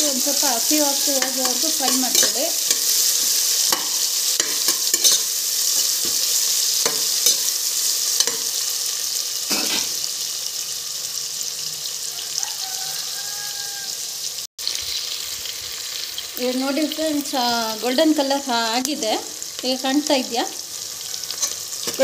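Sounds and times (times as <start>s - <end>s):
onions sizzling in hot oil: 0.0s - 22.0s
spoon scraping a pot: 1.0s - 7.5s, 21.2s - 22.0s.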